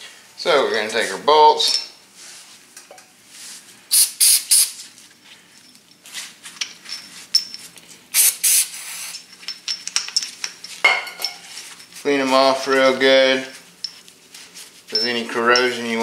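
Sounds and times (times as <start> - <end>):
aerosol can spraying: 3.9 - 4.8, 8.1 - 9.2.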